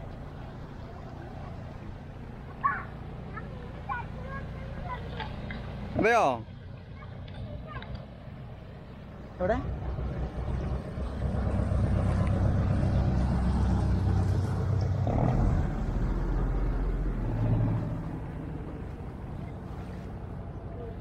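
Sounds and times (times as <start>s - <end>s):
boat motor running: 9.1s - 21.0s.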